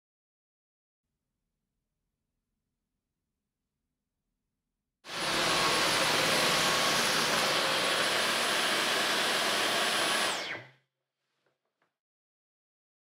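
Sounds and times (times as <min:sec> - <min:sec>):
vacuum cleaner motor whining: 0:05.1 - 0:10.7.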